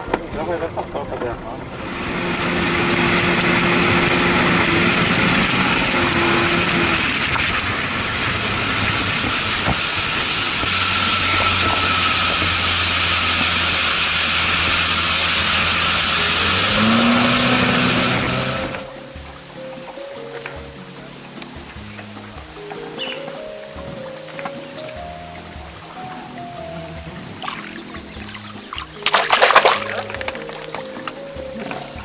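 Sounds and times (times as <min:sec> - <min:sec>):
outboard motor running: 0:00.0 - 0:32.0
spray hissing off hull: 0:01.8 - 0:19.0.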